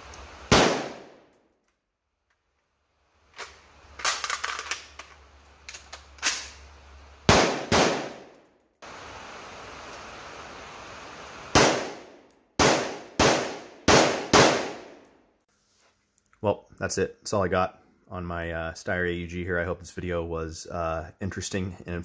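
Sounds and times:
outdoor background noise: 0:00.0 - 0:22.0
rifle shots with echo: 0:00.5 - 0:01.2, 0:07.3 - 0:08.3, 0:11.6 - 0:15.0.

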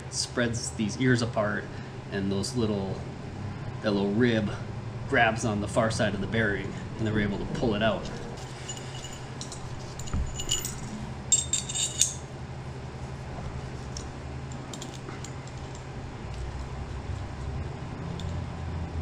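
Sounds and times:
low steady hum: 0:00.0 - 0:19.0
small steel pieces clinking: 0:08.2 - 0:12.3, 0:14.0 - 0:15.8.

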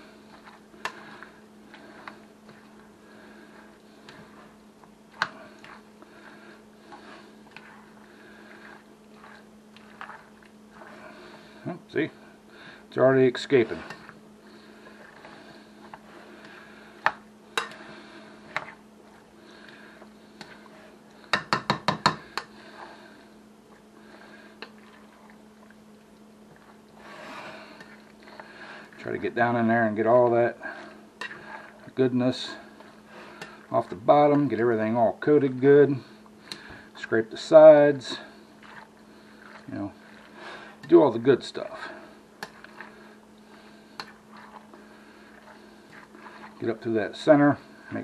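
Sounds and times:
wet squishy stirring: 0:00.0 - 0:48.0
spoon knocking on glass bowl: 0:21.4 - 0:22.2.

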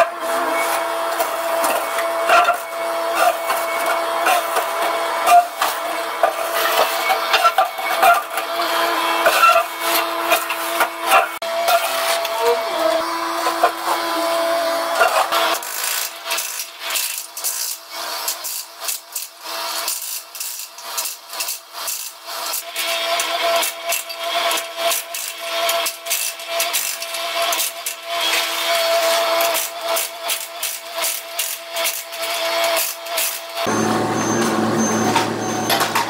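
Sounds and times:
hydraulic breaker hammering concrete: 0:27.9 - 0:36.0
machine humming: 0:33.6 - 0:36.0.

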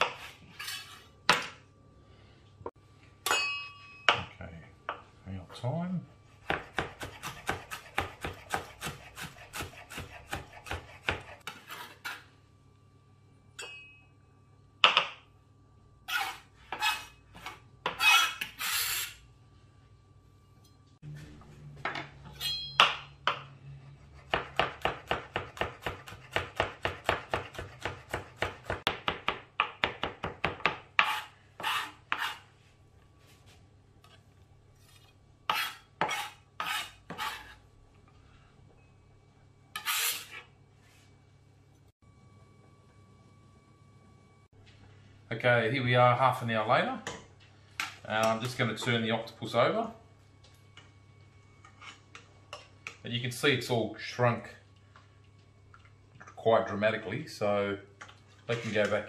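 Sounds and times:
knife blade scraping board: 0:00.0 - 0:01.1, 0:06.7 - 0:12.3, 0:16.1 - 0:19.2, 0:31.0 - 0:32.4, 0:34.8 - 0:37.6, 0:39.7 - 0:40.5
knife chopping on plastic board: 0:06.4 - 0:11.3.

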